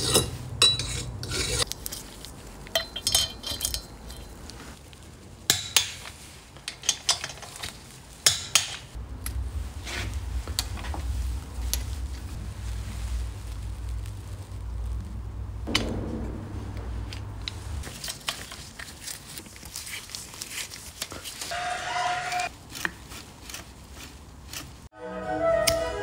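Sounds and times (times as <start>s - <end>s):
low hum: 9.0s - 17.9s.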